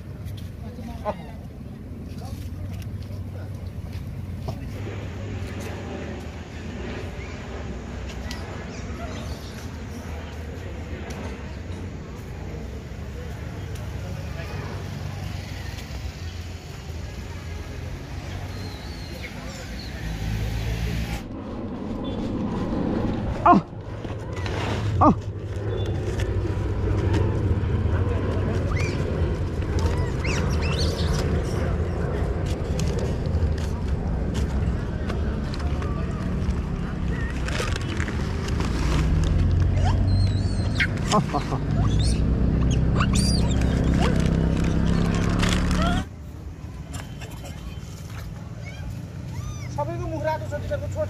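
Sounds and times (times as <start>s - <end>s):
steady low rumble: 0.0s - 9.0s, 19.3s - 39.8s
high wavering animal calls: 29.8s - 31.2s, 39.7s - 46.1s, 48.6s - 49.8s
monkey cries sliding down: 39.7s - 44.7s.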